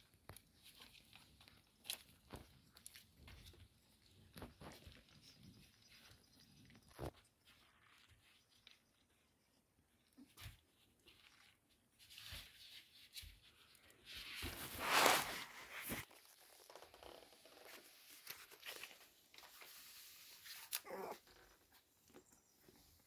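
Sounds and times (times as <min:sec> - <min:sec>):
rustling and scraping: 0:00.0 - 0:23.0.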